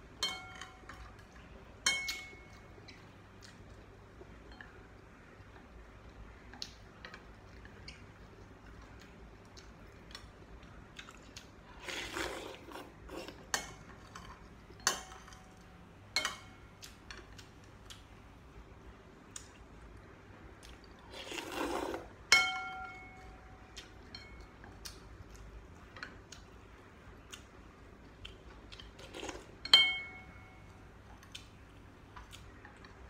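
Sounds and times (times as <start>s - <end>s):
utensils clinking on ceramic bowl: 0.2s - 2.7s, 13.2s - 17.3s, 22.3s - 23.4s, 24.0s - 24.6s, 29.0s - 30.8s
noodles slurped: 21.0s - 22.1s.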